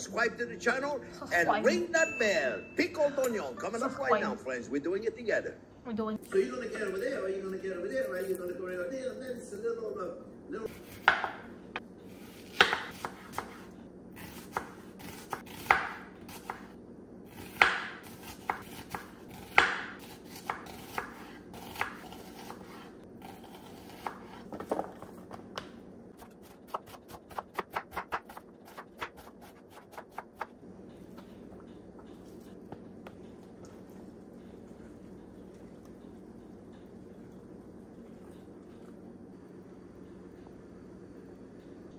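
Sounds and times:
knife chopping on wooden board: 10.7s - 11.4s, 12.4s - 13.6s, 14.2s - 16.7s, 17.4s - 24.9s.

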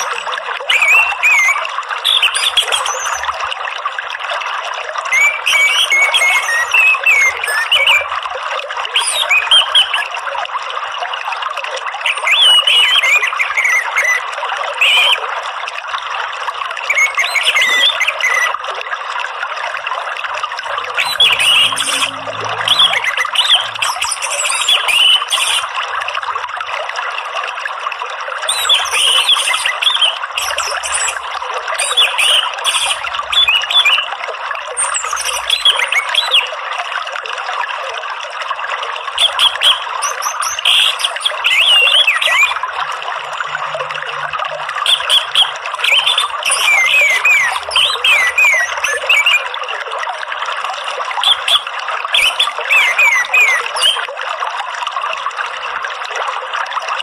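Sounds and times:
thrush whistling song: 0.0s - 3.4s, 5.1s - 8.1s, 9.0s - 10.1s, 12.1s - 15.2s, 16.8s - 18.6s, 20.6s - 25.7s, 28.5s - 34.1s, 34.8s - 36.5s, 39.2s - 42.6s, 44.8s - 49.5s, 51.2s - 54.1s
running water: 0.0s - 57.0s.

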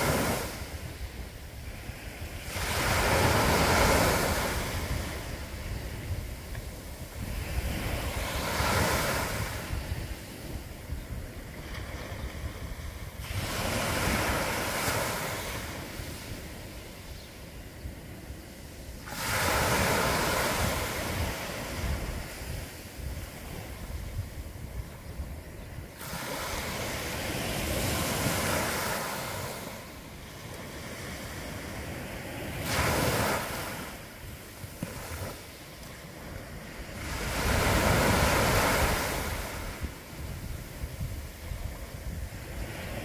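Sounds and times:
waves washing up a sand beach: 0.0s - 43.0s.

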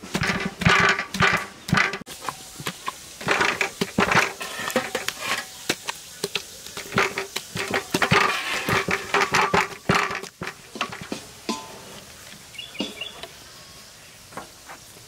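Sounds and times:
kitchen utensils clattering: 0.0s - 6.0s, 6.8s - 12.0s, 12.8s - 13.2s.

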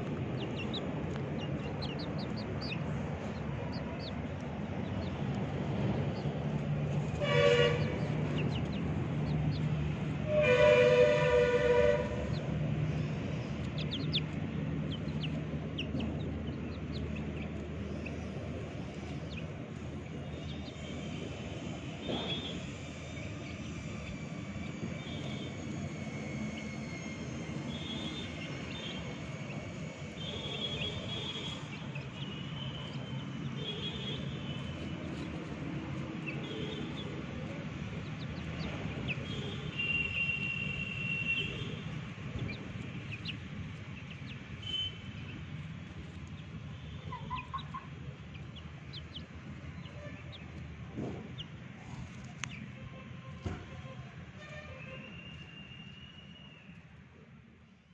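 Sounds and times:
chickens cheeping: 0.1s - 10.4s, 11.3s - 19.7s, 46.0s - 50.6s.

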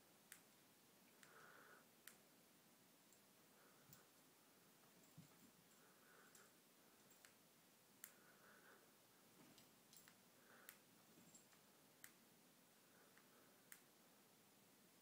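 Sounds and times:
faint sharp clicks: 0.3s - 2.2s, 6.2s - 7.4s, 8.0s - 8.3s, 9.6s - 12.2s, 13.0s - 13.9s.

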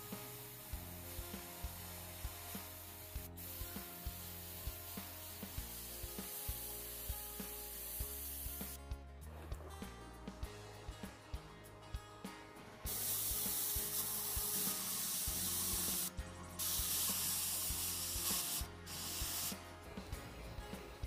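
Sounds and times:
airbrush hissing: 0.0s - 8.8s, 12.9s - 19.6s
music with steady beat: 0.0s - 21.0s.

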